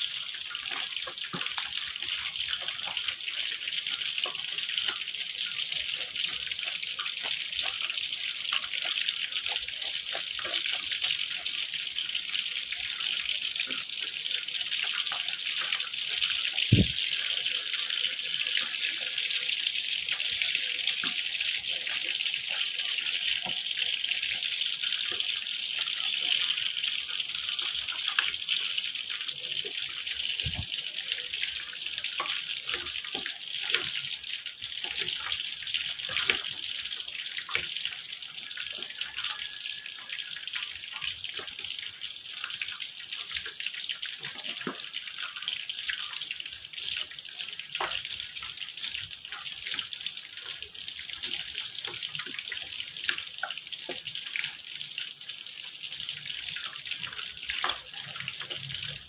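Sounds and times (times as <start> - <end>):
knife chopping on wooden board: 16.7 - 17.0, 30.4 - 30.7.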